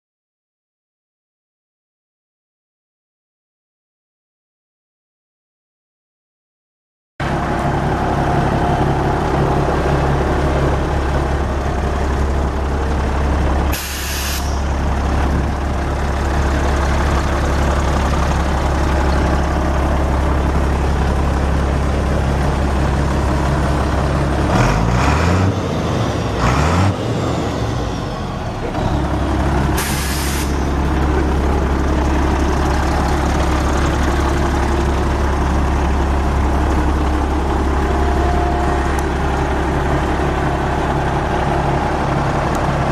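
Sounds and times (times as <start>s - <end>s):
diesel truck engine idling: 7.2s - 42.9s
air brake hiss: 13.7s - 14.6s, 29.8s - 30.6s.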